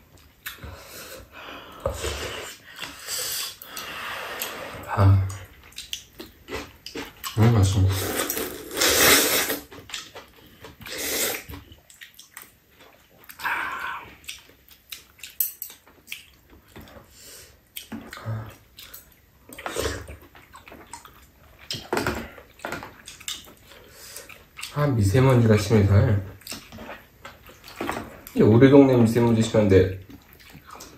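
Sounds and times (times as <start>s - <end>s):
noodles being slurped: 6.5s - 11.6s
utensil sounds: 7.4s - 9.7s.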